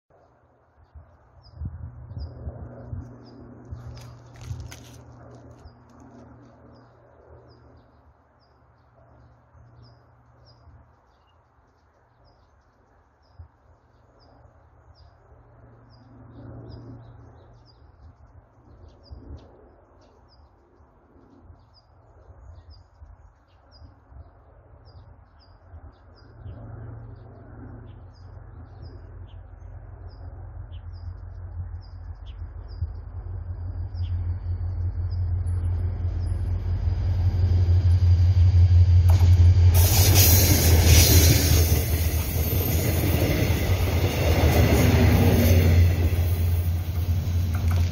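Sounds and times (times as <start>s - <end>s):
train approaching: 31.4s - 47.9s.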